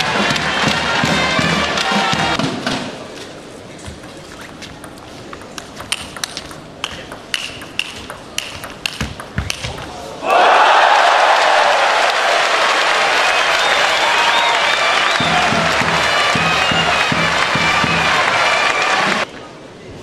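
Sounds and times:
crowd noise: 0.0s - 20.0s
table tennis ball clicking: 3.8s - 10.0s.

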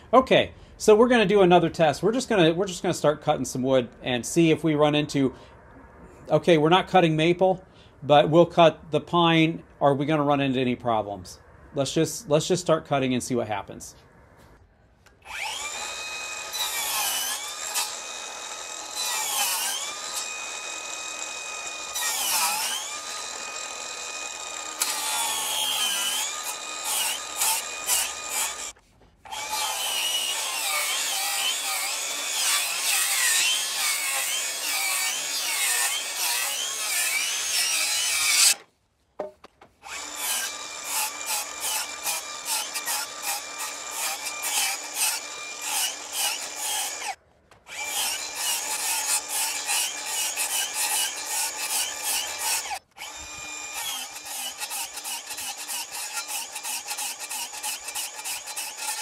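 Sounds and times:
circular saw cutting wood: 15.2s - 38.6s, 39.8s - 59.0s.

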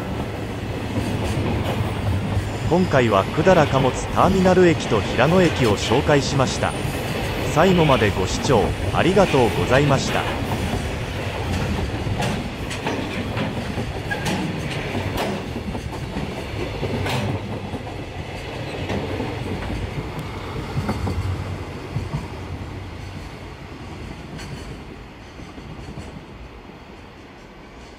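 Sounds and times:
freight train rumbling: 0.0s - 27.9s
wheels clicking over rail joints: 10.0s - 21.4s.

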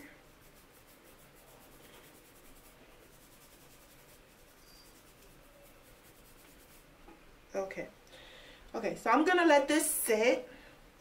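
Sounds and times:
fingers rubbing wet hair: 0.0s - 7.0s.

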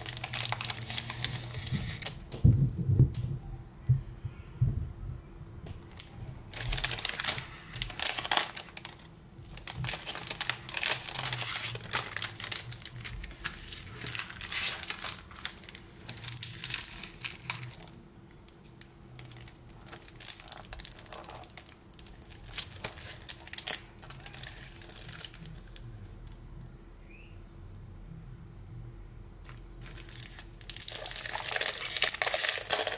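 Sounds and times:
plastic packaging crinkling: 0.0s - 2.2s, 5.9s - 18.0s, 18.6s - 25.8s, 29.4s - 32.9s.

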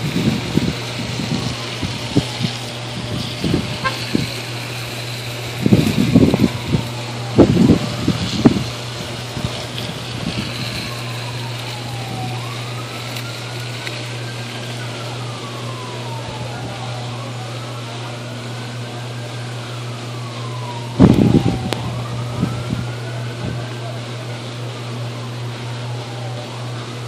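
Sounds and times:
electrical arcing crackling: 0.0s - 17.0s, 20.9s - 22.9s
faint siren wailing: 0.0s - 27.0s
transformer electrical hum: 0.0s - 27.0s.

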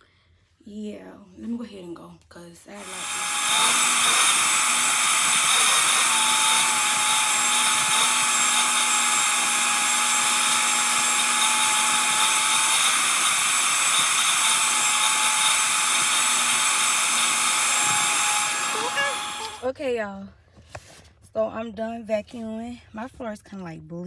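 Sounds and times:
vacuum cleaner running: 2.7s - 19.7s.

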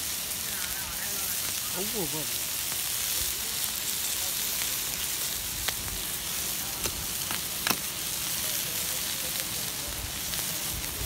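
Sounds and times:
crabs sizzling on a grill: 0.0s - 11.0s
sharp pops: 6.8s - 8.0s.

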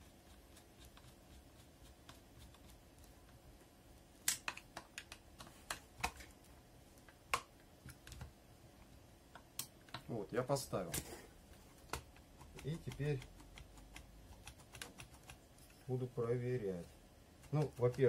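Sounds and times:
hand tool tapping plastic parts: 11.9s - 15.4s, 17.4s - 18.0s.

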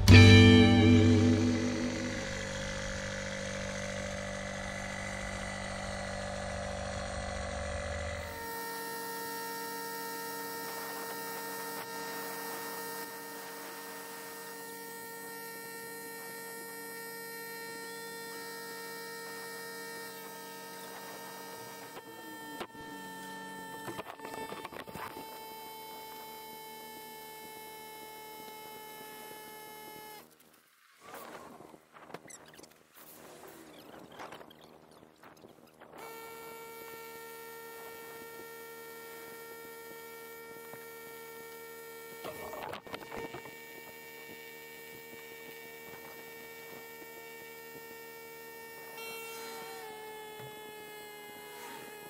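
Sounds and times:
music: 0.0s - 2.7s
electric air pump humming: 0.0s - 30.4s, 36.0s - 52.0s.

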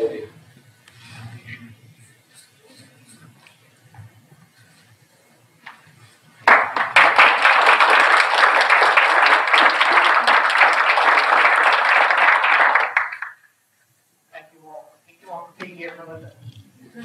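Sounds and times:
audience applauding: 6.4s - 13.4s.

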